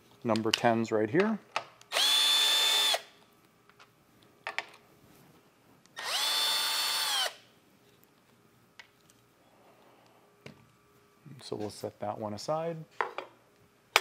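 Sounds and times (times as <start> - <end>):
cordless drill motor spinning: 1.9 - 3.1, 6.0 - 7.4.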